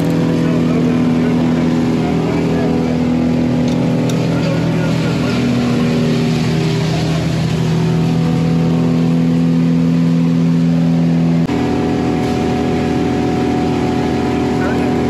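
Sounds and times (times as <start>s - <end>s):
engine humming steadily: 0.0s - 15.0s.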